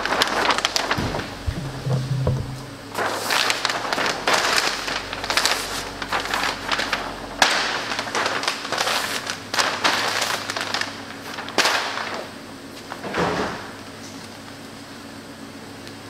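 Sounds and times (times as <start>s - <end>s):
paper crumpling and crackling: 0.0s - 2.2s, 2.9s - 13.1s.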